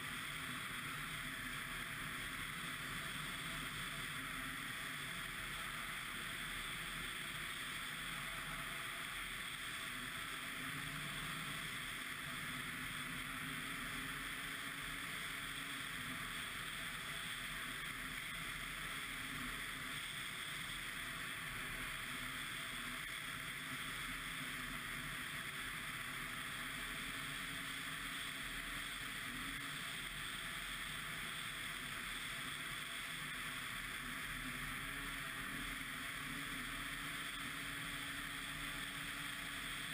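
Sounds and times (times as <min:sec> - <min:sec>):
snowmobile engine and track drone: 0:00.0 - 0:39.9.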